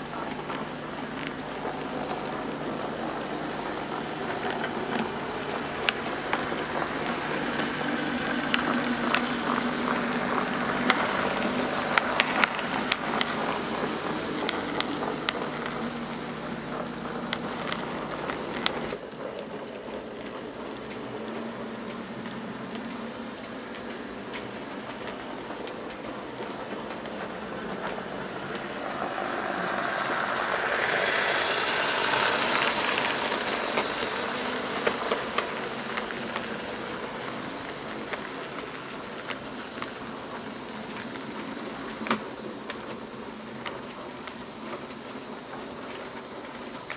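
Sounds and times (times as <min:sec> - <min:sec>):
low motor hum: 0:00.0 - 0:46.9
model train rushing rattle: 0:00.0 - 0:46.9
wheels clicking over rail joints: 0:00.0 - 0:46.9.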